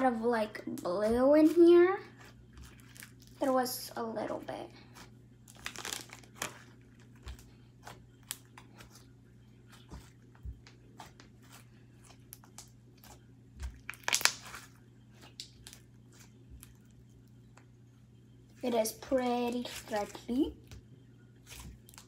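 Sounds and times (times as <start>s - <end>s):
steady low hum: 0.0s - 22.0s
slime crackling and popping: 5.5s - 7.3s, 12.2s - 15.8s.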